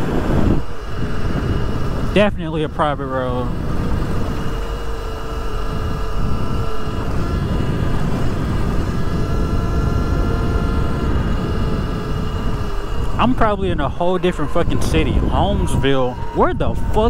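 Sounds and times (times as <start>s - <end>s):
electric motor whine: 0.0s - 17.0s
wind noise: 0.0s - 17.0s
tyres rumbling on gravel: 11.4s - 17.0s.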